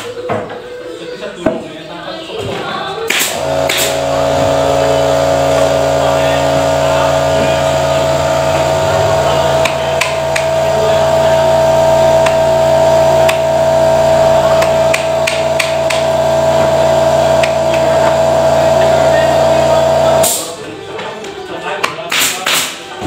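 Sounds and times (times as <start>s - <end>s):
machine humming: 3.1s - 20.7s.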